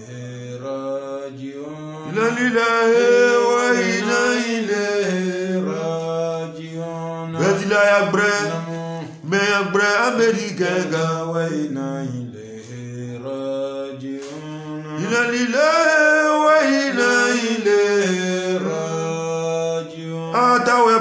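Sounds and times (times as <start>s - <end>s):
man chanting: 0.0s - 21.0s.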